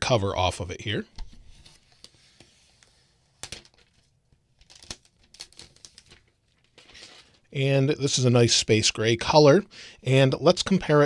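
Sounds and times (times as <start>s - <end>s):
plastic film peeling crinkling: 2.8s - 7.5s.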